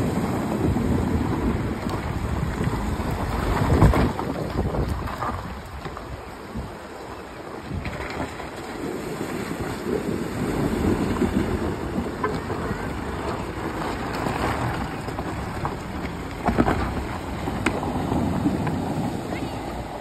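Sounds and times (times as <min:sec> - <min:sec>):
stones crunching under tyres: 0:00.0 - 0:09.2, 0:10.4 - 0:19.1
water sloshing: 0:07.8 - 0:20.0
diesel engine running under load: 0:10.0 - 0:20.0
stones knocking: 0:12.1 - 0:18.8.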